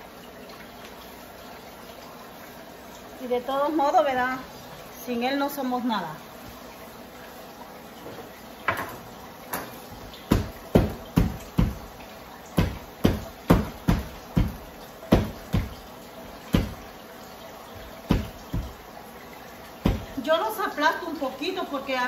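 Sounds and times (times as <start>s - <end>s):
knife knocks on plastic cutting board: 10.3s - 11.8s, 12.6s - 15.8s, 16.5s - 16.8s, 18.1s - 18.8s, 19.8s - 20.2s.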